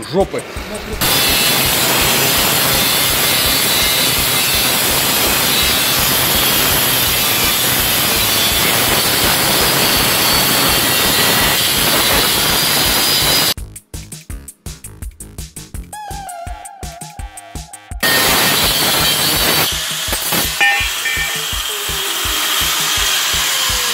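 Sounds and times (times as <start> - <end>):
angle grinder cutting steel: 0.4 - 13.6, 18.0 - 23.9.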